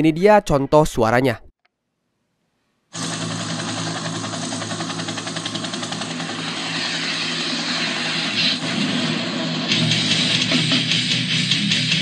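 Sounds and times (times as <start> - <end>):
rising pitch sweep: 3.0 - 11.1
droning music from speaker: 3.0 - 12.0.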